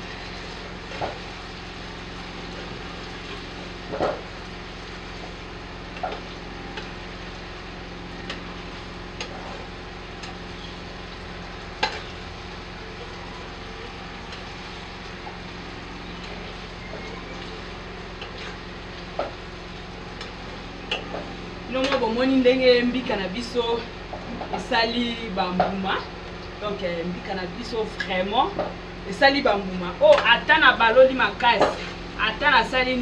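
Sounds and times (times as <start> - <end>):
chicken sizzling in a frying pan: 0.0 - 24.6.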